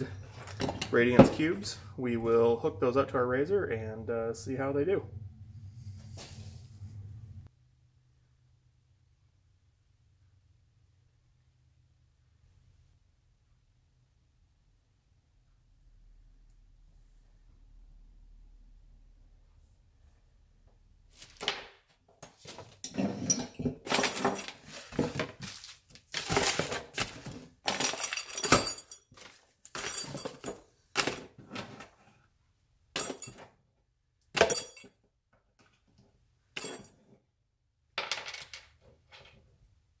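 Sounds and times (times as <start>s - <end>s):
plastic bags crinkling: 24.4s - 28.2s
metal hardware clinking on wooden table: 34.4s - 34.9s.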